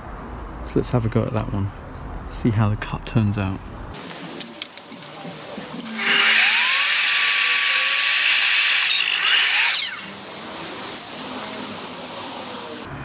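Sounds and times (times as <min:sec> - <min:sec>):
mitre saw cutting wood: 0:05.8 - 0:10.2.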